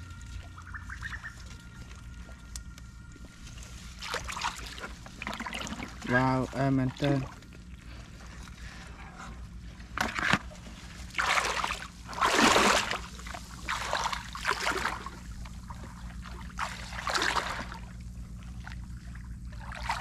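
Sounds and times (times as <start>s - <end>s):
wading through water: 0.0s - 20.0s.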